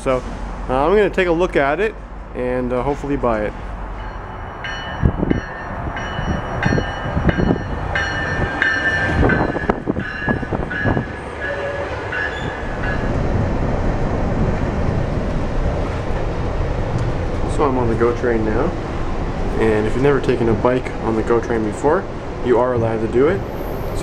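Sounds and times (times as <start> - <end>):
train rumble: 0.0 - 24.0
train wheels clattering: 2.0 - 18.2
high ringing tone: 3.9 - 13.2.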